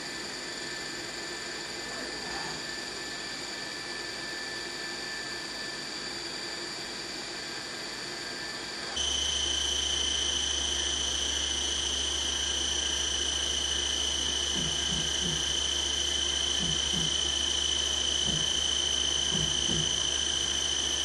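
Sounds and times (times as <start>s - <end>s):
machine motor whining: 8.3s - 21.0s.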